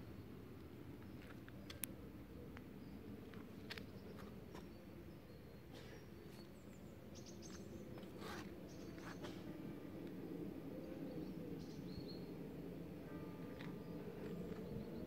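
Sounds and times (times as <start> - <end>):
small birds chirping: 2.5 - 9.4
distant road traffic rumble: 5.6 - 11.7.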